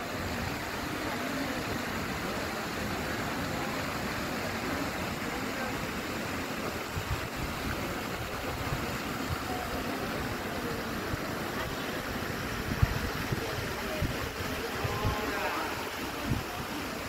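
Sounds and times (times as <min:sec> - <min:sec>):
faint indistinct voices: 0:00.0 - 0:17.0.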